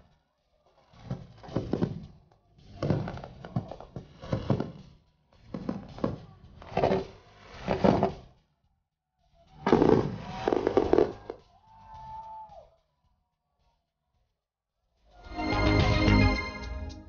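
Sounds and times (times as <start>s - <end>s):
fireworks booming: 9.7s - 11.4s.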